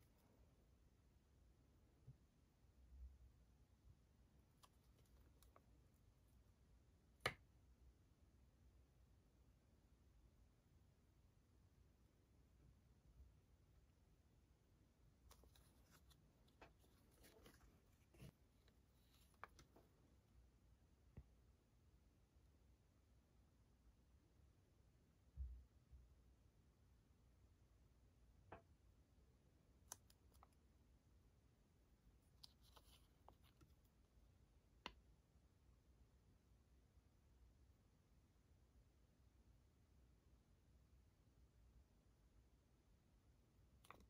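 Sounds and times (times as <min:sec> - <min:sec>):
paper and brush handling clicks: 0:15.3 - 0:19.8.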